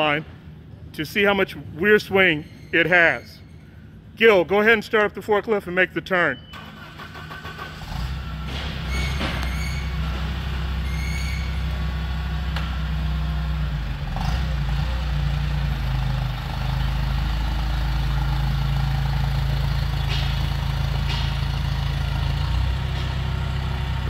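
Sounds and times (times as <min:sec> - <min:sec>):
forklift engine running: 0:06.4 - 0:24.0.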